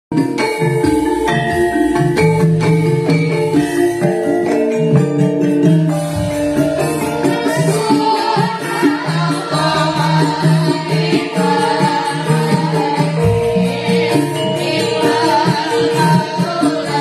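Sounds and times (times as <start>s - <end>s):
hand percussion: 0.1s - 17.0s
person singing: 7.1s - 17.0s.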